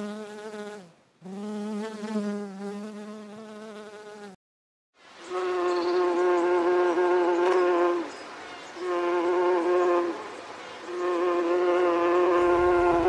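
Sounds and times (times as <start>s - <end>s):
insect wings buzzing: 5.3s - 8.1s, 8.8s - 10.3s, 10.9s - 13.0s.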